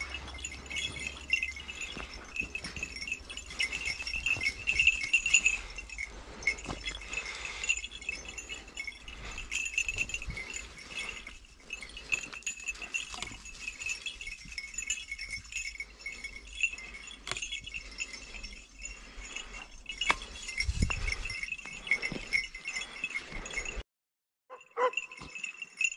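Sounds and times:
knocks and rustles on stony ground: 0.0 - 18.5
dog collar bells jingling: 0.0 - 23.8, 24.5 - 25.9.

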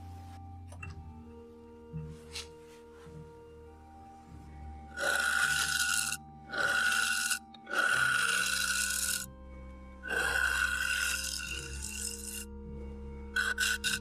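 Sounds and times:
steady ringing tone: 3.2 - 14.0
lathe tool scraping wood: 4.9 - 9.3, 10.0 - 12.5, 13.4 - 14.0.

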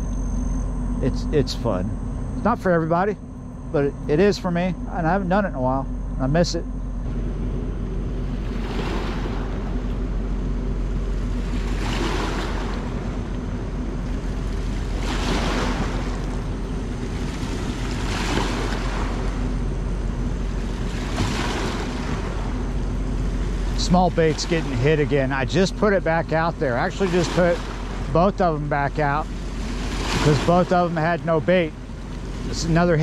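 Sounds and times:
low drone: 0.0 - 33.0
small waves splashing on rocks: 29.6 - 30.8.

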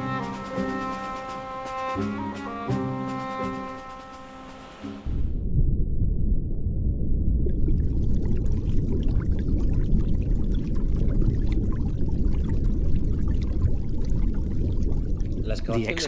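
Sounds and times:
underwater bubbles rumble: 5.1 - 16.0
crackling fizz of bubbles: 7.2 - 16.0.

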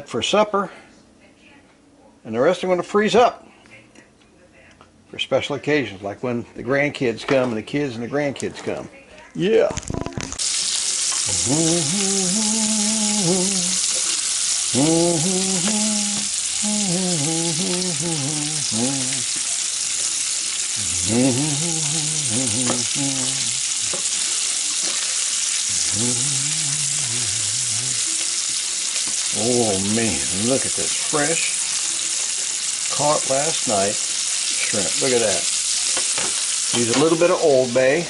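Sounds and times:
shrimp sizzling in a pan: 9.8 - 38.0.

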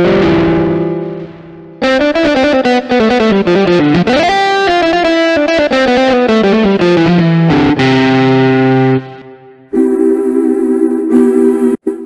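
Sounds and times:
keyboard distorted guitar notes: 0.0 - 12.0.

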